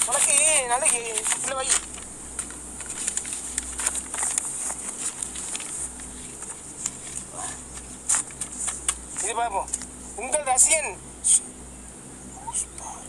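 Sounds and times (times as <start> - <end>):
envelope paper rustling and tearing: 0.0 - 9.9.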